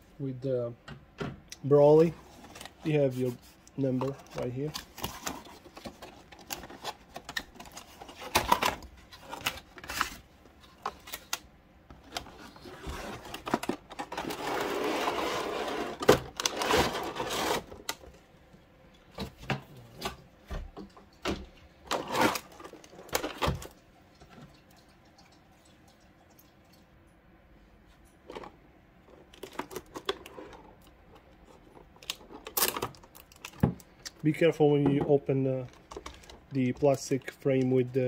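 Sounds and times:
plastic crinkling and rustling: 2.0s - 18.2s, 28.3s - 38.0s.

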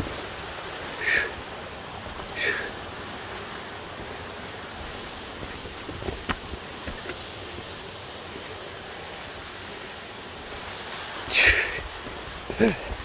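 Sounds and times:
steady rushing noise: 0.0s - 13.0s
footsteps on loose rock: 4.8s - 7.3s.

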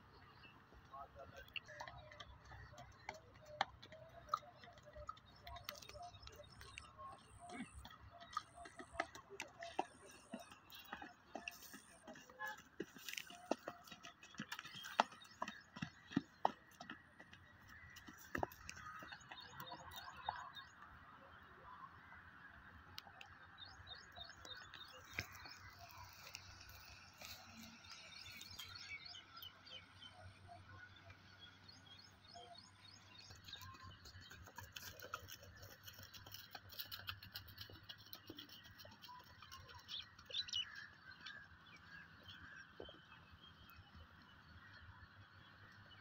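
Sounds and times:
rural background noise: 0.0s - 46.0s.

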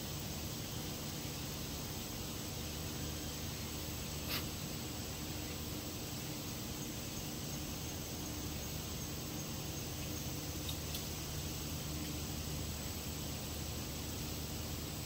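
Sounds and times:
background hiss: 0.0s - 15.0s
faint low hum: 0.0s - 15.0s.

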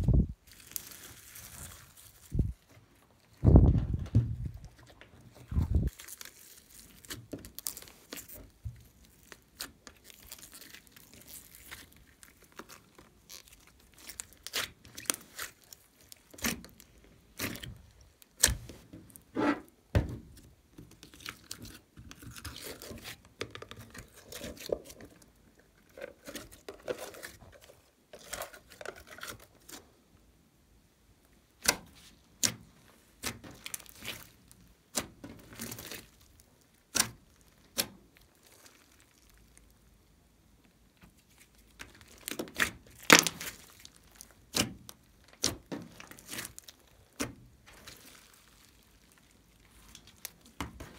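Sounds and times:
slime squishing and popping: 5.8s - 19.2s, 31.6s - 39.9s, 41.2s - 50.9s.

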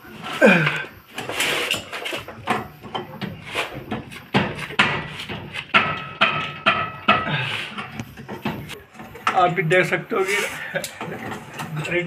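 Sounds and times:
metallic knocks and clicks: 2.4s - 9.4s.

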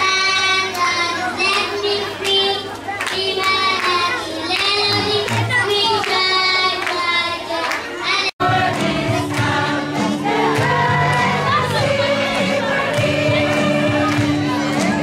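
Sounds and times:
children singing: 4.8s - 15.0s.

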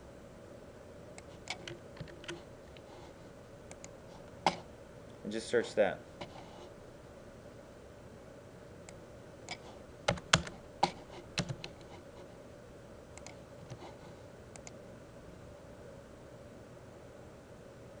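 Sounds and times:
faint steady hum: 0.0s - 18.0s
computer keyboard typing: 1.5s - 2.4s, 10.1s - 10.6s, 11.4s - 11.9s.

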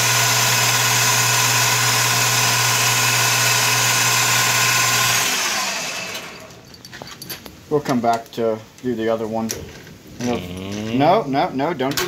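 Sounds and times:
metal lathe motor hum: 0.0s - 6.5s.

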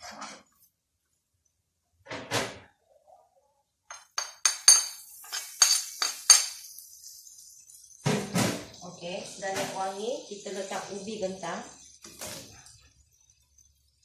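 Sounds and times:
metal spatula clinking on plate: 3.9s - 6.8s
faint sizzle in wok: 4.5s - 14.0s.

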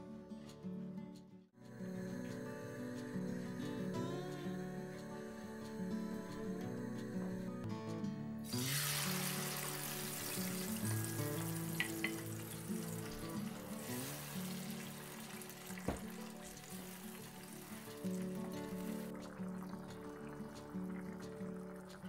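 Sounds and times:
tomato puree sizzling in oil: 8.5s - 22.0s
wooden spoon knocking pan: 15.9s - 16.2s.

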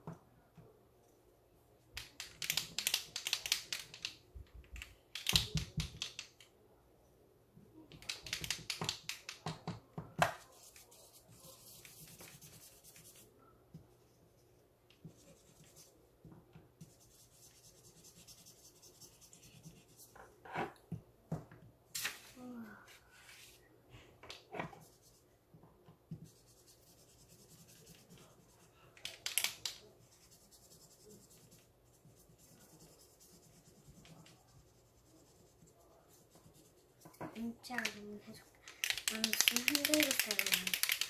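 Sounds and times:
marker scribbling on paper: 10.4s - 13.3s, 14.0s - 16.0s, 16.8s - 20.1s, 26.1s - 37.5s.

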